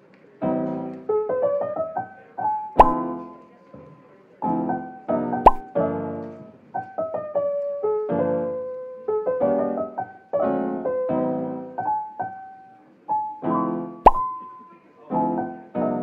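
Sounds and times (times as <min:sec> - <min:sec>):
soft piano music: 0:00.4 - 0:03.6, 0:04.4 - 0:16.0.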